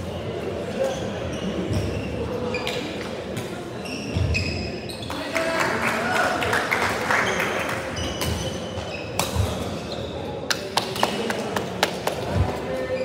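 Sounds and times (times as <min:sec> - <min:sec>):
shoe squeaks on wooden floor: 0:00.8 - 0:03.0, 0:03.8 - 0:05.2, 0:07.3 - 0:10.4.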